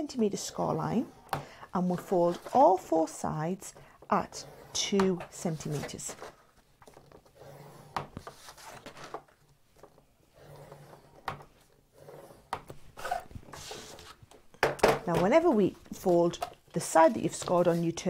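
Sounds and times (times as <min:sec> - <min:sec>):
scoring tool scraping cardstock: 0:00.6 - 0:03.1, 0:04.1 - 0:09.1, 0:12.0 - 0:14.2, 0:15.4 - 0:18.0.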